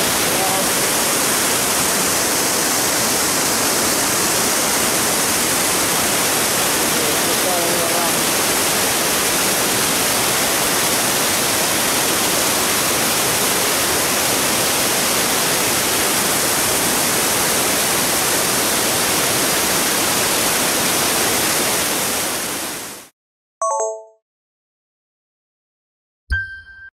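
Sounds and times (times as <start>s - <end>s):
waterfall rushing: 0.0s - 23.1s
short chime: 23.6s - 24.2s, 26.3s - 26.9s.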